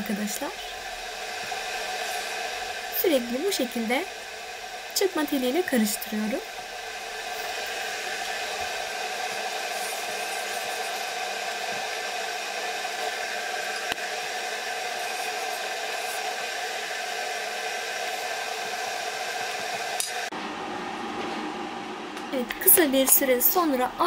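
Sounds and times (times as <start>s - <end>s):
whirring drone of a fan: 0.0s - 24.0s.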